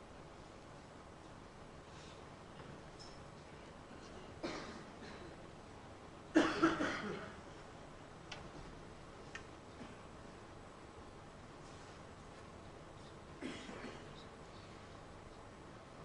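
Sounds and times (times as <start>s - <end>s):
person coughing: 4.4s - 5.4s, 6.4s - 7.4s, 13.4s - 14.2s.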